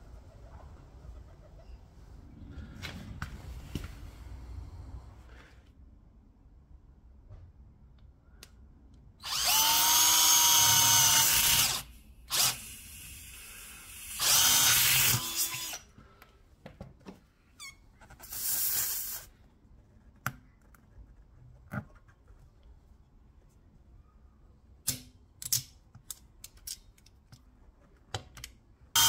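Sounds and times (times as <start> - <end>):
power drill whining into rubber: 9.2 - 15.8.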